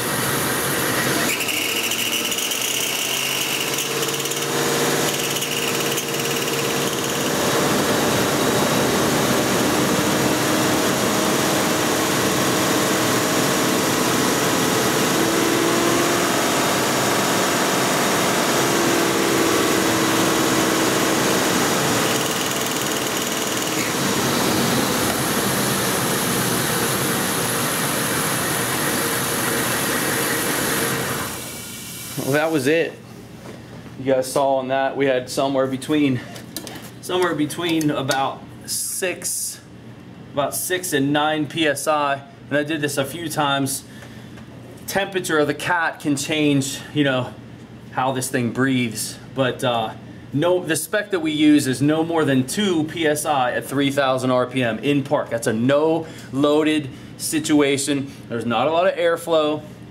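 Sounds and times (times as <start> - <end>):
harsh revving car engine: 0.0 - 31.4.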